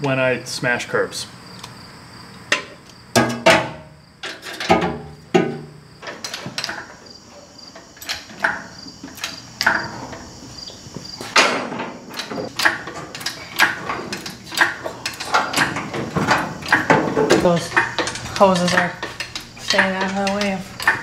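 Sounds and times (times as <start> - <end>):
tools and metal parts clanking: 2.5 - 21.0.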